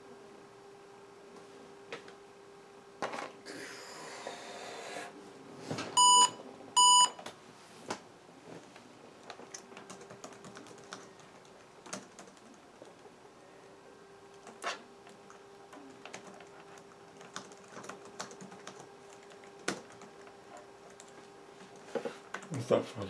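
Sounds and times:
short high computer beeps: 0:06.0 - 0:07.1.

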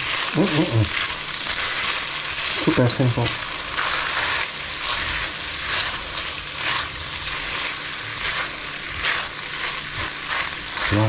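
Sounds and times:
food sizzling in a pan: 0:00.0 - 0:11.0
stirring strokes in pan: 0:00.0 - 0:11.0.

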